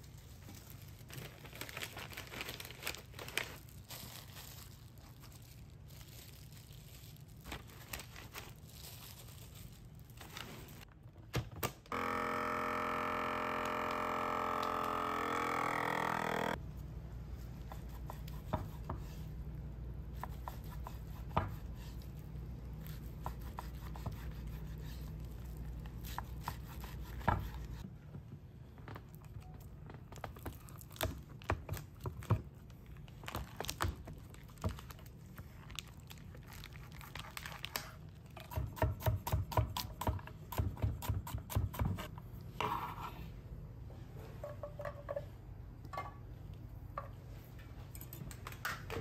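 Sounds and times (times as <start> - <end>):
low steady hum: 0.0 - 38.5.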